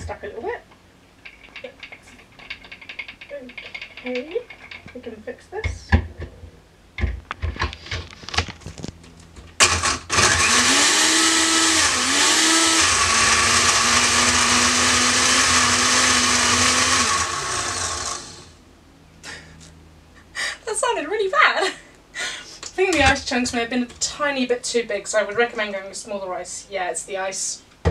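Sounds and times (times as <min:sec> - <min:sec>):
blender motor grinding ice: 0:09.6 - 0:18.6.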